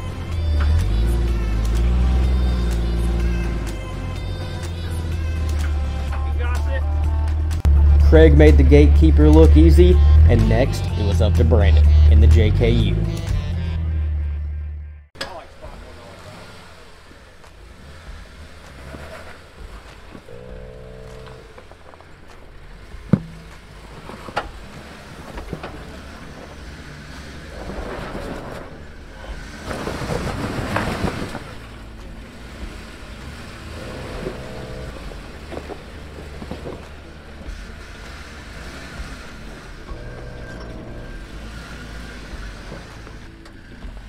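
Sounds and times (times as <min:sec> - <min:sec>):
low engine rumble: 0:00.0 - 0:44.0
engine surge and rock noise: 0:15.2 - 0:44.0.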